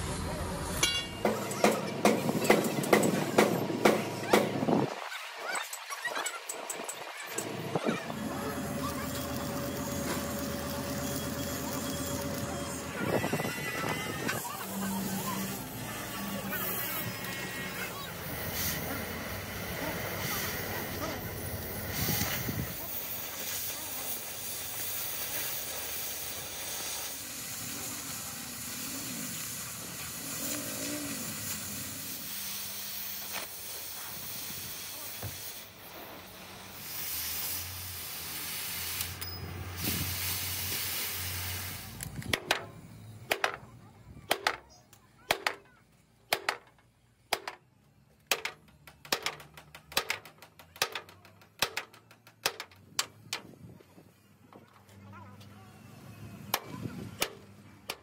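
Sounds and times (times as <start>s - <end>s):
steady hiss: 14.5s - 42.3s.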